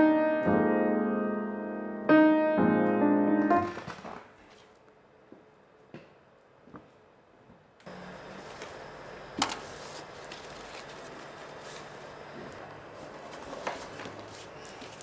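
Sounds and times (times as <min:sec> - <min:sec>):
faint hum: 0:00.0 - 0:15.0
papers rustling: 0:03.5 - 0:04.8, 0:09.4 - 0:15.0.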